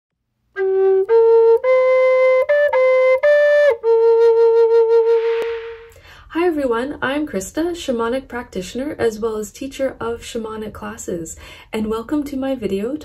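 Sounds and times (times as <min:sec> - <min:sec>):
wooden flute melody: 0:00.5 - 0:05.9.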